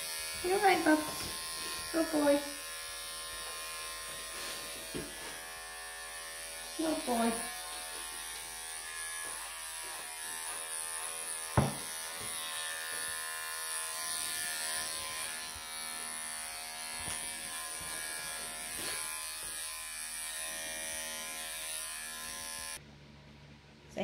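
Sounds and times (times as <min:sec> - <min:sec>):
electric clippers buzzing: 0:00.0 - 0:22.8
sharp knock: 0:11.6 - 0:11.8.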